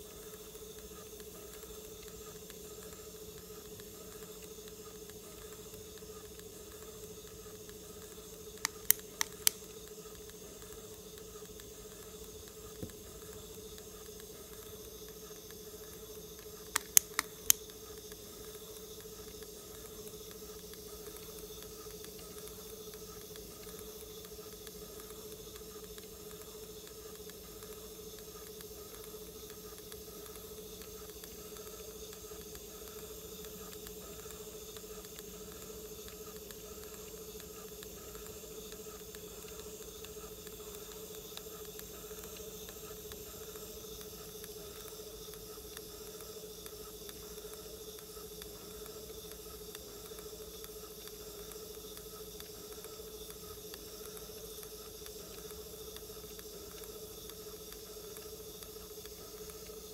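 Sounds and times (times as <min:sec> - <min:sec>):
tape drive motor hum: 0:00.0 - 0:59.9
tape hiss: 0:00.0 - 0:59.9
sharp clicks: 0:07.6 - 0:19.9.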